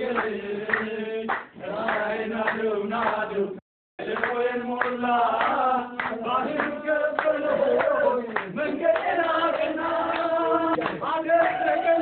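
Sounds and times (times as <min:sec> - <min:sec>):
voices singing: 0:00.0 - 0:12.0
hand clapping: 0:00.1 - 0:03.3, 0:04.0 - 0:12.0.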